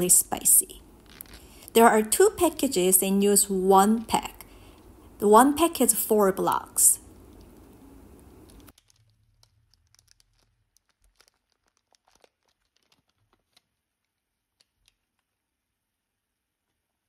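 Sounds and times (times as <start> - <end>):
faint steady hiss: 0.0 - 8.7
plastic and foil wrapper crinkling: 0.3 - 2.8, 7.1 - 15.8.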